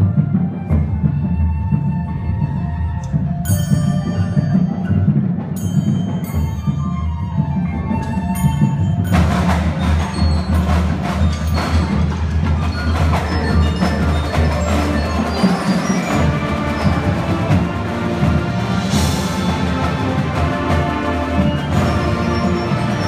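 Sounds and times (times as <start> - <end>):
marching band music: 0.0 - 23.0
marimbas and mallet percussion: 2.2 - 23.0
drum strikes: 8.0 - 23.0.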